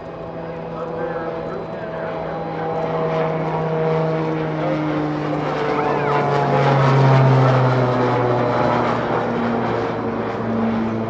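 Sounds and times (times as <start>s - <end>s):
propeller plane flyby: 0.0s - 11.0s.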